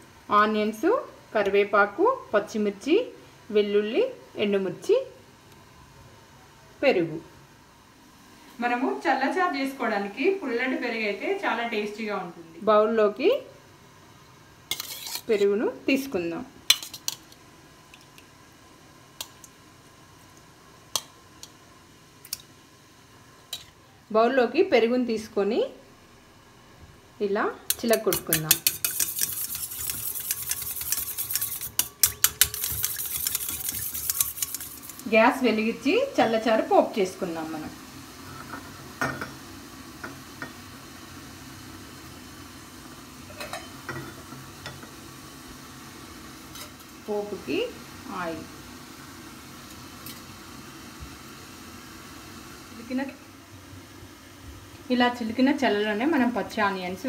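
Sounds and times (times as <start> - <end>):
gas burner hum and hiss: 0.0 - 57.0
steel spoon clinking on bowls: 27.7 - 35.0.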